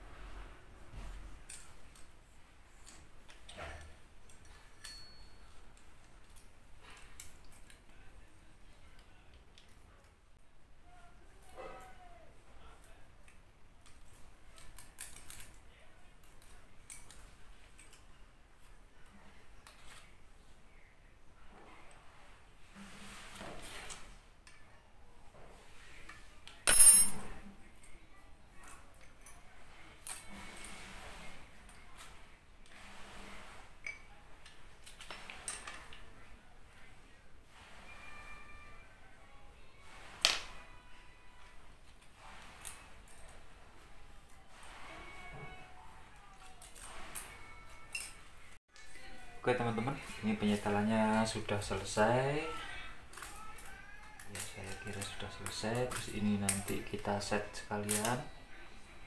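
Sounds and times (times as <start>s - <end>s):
metal tools ticking and rustling: 2.8s - 7.6s
sharp metallic clink: 26.7s - 27.3s.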